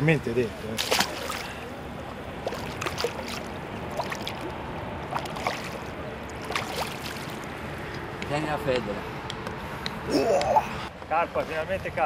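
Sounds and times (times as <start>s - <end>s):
water lapping at bank: 0.6s - 8.1s
small splashes: 0.8s - 1.7s, 2.4s - 7.6s.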